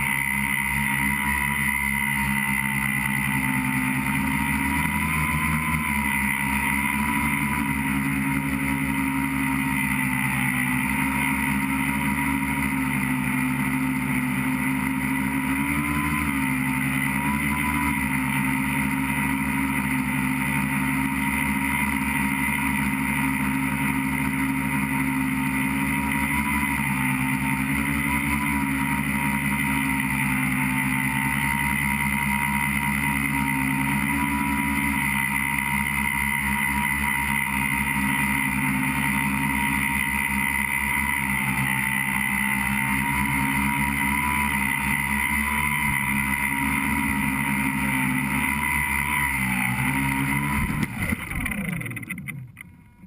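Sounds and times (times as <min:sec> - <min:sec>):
electric motors and propellers whining: 0:00.0 - 0:53.0.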